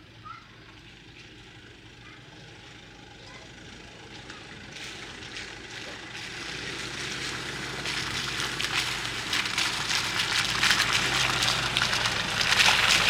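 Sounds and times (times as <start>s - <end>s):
low engine hum: 0.0s - 13.0s
tyres crackling over mud: 2.7s - 13.0s.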